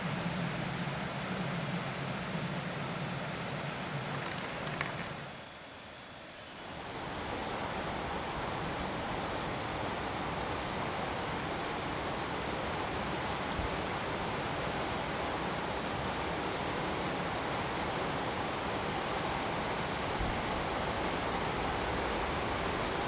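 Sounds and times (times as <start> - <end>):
outdoor background hiss: 0.0 - 23.0
faint high-pitched chirp: 6.3 - 6.8.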